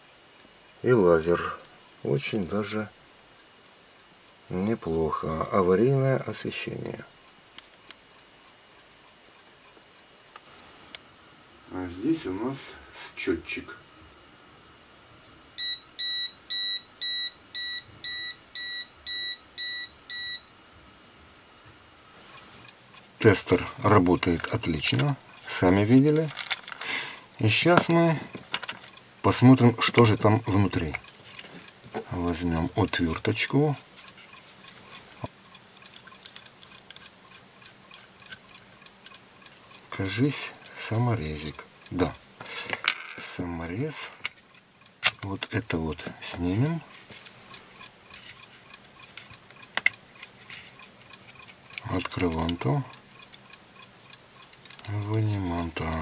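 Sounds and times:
voltage tester beeping: 15.6 - 20.5.

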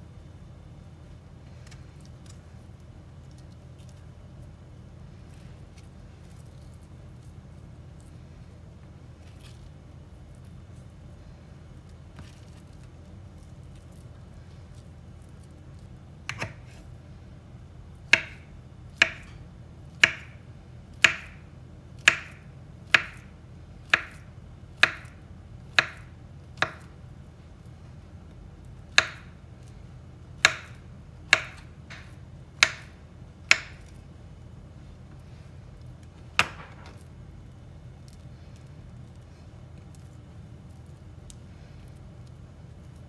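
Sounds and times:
knife slicing banana on board: 16.3 - 16.8.

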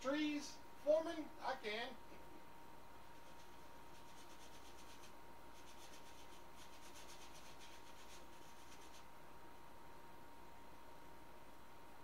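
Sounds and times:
paintbrush scratching on canvas: 3.0 - 9.1.

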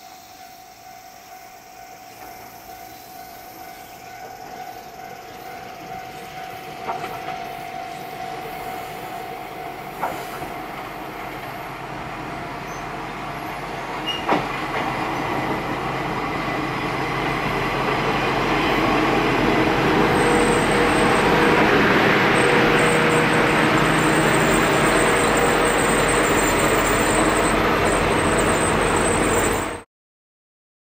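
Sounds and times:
diesel railcar engine: 0.0 - 29.8.

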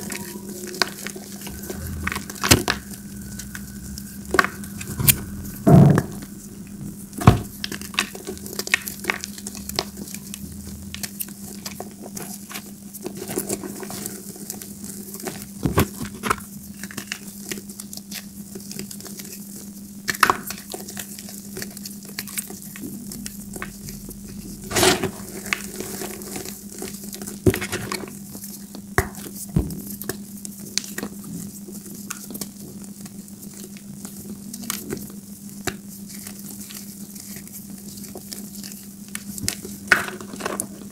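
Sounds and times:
faint low hum: 0.0 - 12.3, 21.0 - 30.0.

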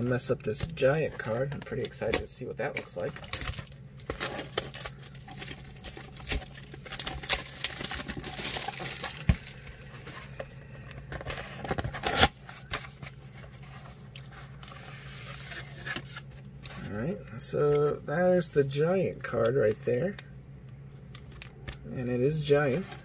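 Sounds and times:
plastic shrink wrap crinkling: 1.2 - 16.3.

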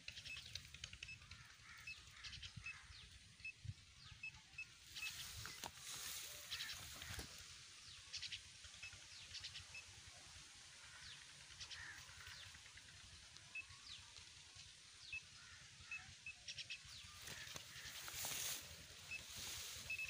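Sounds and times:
faint bird chirps: 0.0 - 11.0, 15.0 - 20.0.

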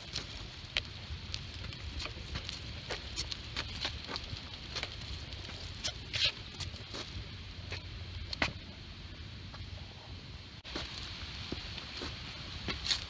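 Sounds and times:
light clicks and crackles: 0.0 - 8.7
wagon rolling on pavement: 0.0 - 13.0.

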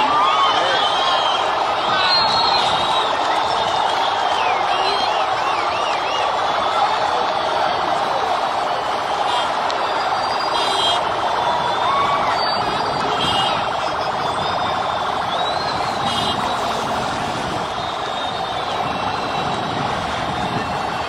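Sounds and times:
large crowd din: 0.0 - 21.0.

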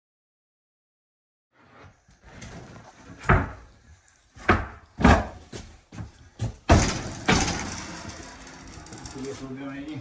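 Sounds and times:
thumps on plywood floor: 4.4 - 7.6.

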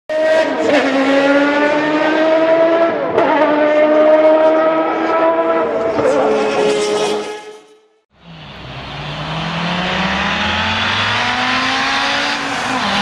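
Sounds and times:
racing car engine accelerating: 0.1 - 7.3, 8.2 - 13.0.

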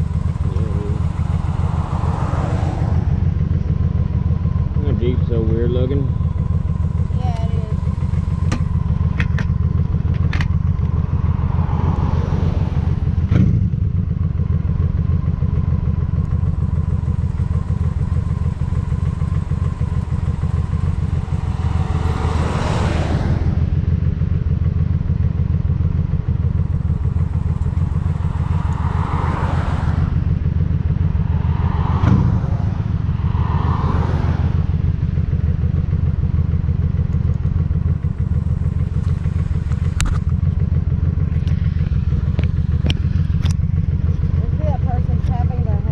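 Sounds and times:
motorcycle engine rumbling: 0.0 - 45.9
sharp thumps: 8.2 - 11.0, 31.2 - 33.7.

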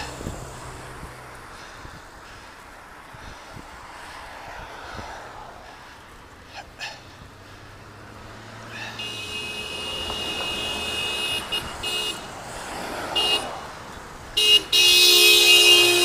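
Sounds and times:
traffic and road noise: 0.0 - 16.0
horn blasts: 8.7 - 12.3, 13.2 - 13.6, 14.4 - 16.0.

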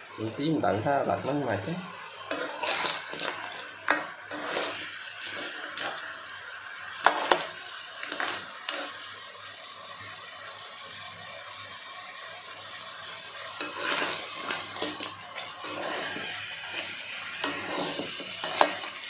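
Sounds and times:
faint frying sizzle: 0.0 - 19.0
crab shells clattering in wok: 2.2 - 6.2, 7.0 - 8.9, 13.6 - 19.0.

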